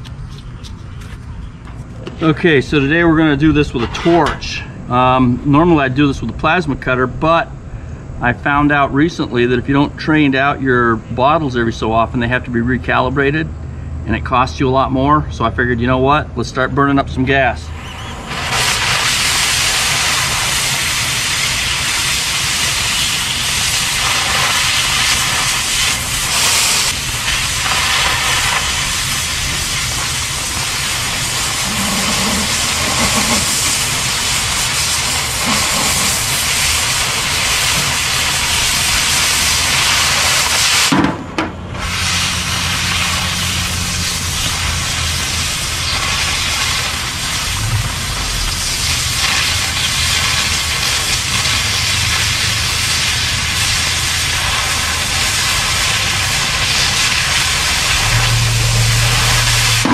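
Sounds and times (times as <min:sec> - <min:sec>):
cutting torch hissing: 0:17.6 - 0:41.0, 0:41.7 - 0:59.9.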